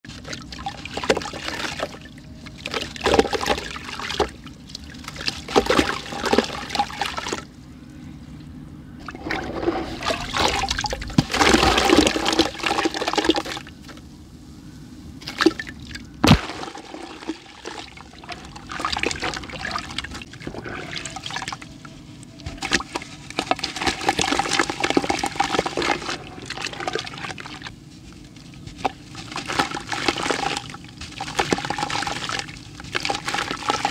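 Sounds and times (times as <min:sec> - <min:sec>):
water trickling into bucket: 0:09.0 - 0:13.7, 0:15.2 - 0:21.7, 0:22.6 - 0:27.7, 0:28.3 - 0:33.9.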